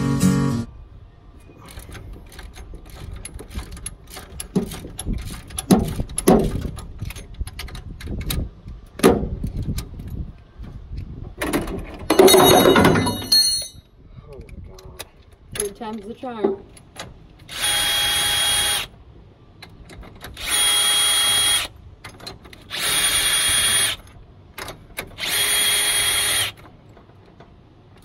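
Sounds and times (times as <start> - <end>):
metal tools clattering: 11.9 - 13.8.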